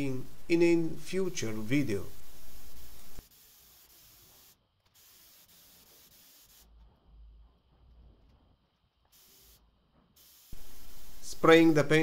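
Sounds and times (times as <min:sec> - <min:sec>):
paint spray gun hissing: 0:01.2 - 0:06.7, 0:09.1 - 0:09.6, 0:10.2 - 0:12.0.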